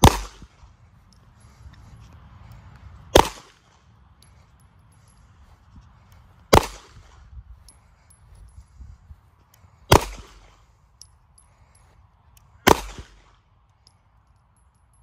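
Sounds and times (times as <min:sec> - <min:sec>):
pistol shots echoing: 0:00.0 - 0:00.5, 0:03.1 - 0:03.5, 0:12.6 - 0:13.2.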